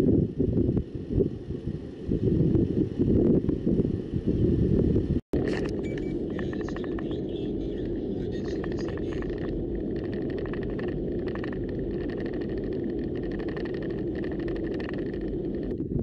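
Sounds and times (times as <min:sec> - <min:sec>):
car road and tyre noise: 0:00.0 - 0:16.0
faint high whine: 0:00.0 - 0:16.0
light irregular ticks: 0:07.8 - 0:15.8.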